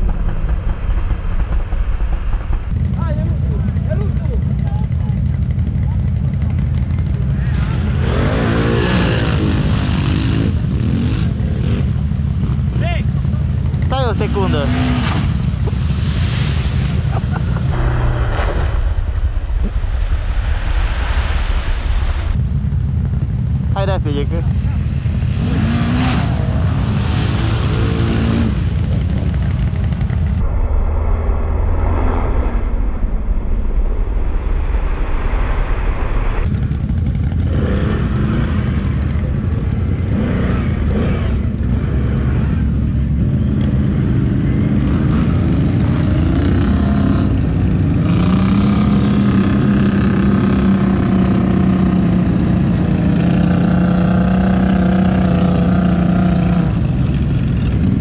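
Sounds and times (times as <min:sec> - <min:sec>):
atv engines running: 0:02.7 - 0:18.1, 0:22.5 - 0:30.4, 0:36.5 - 0:58.0.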